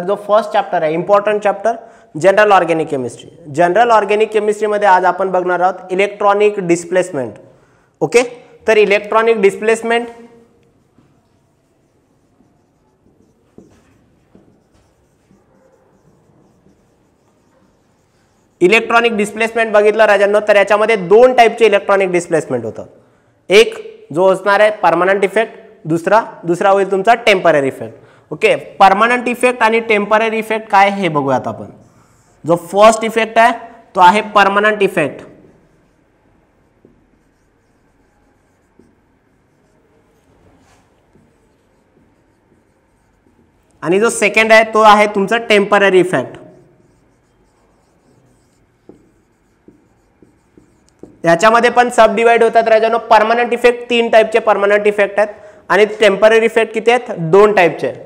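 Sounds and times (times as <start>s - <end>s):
marker writing on whiteboard: 8.2s - 20.0s, 29.4s - 52.1s
marker tip tapping: 36.6s - 39.7s, 41.1s - 43.7s, 46.9s - 51.2s.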